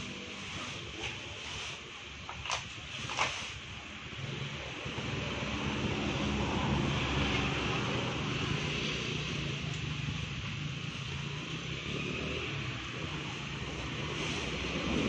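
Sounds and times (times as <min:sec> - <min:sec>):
low engine hum: 0:03.8 - 0:15.0.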